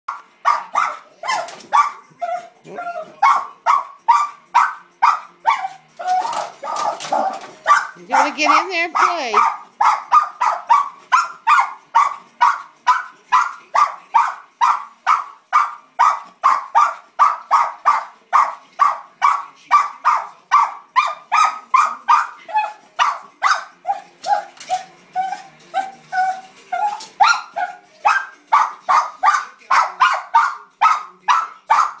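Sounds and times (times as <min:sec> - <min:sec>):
dog barking: 0:00.1 - 0:32.0.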